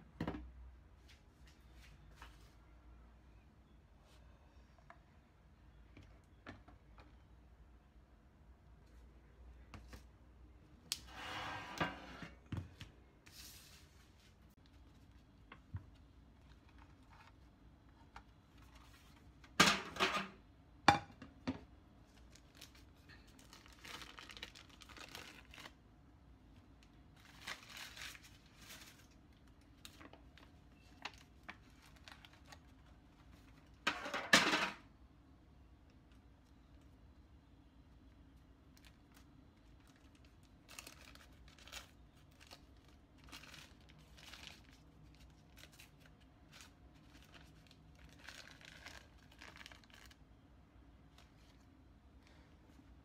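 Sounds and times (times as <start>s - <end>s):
baking paper and foil crinkling: 22.1s - 25.8s, 26.5s - 34.7s, 38.0s - 50.4s.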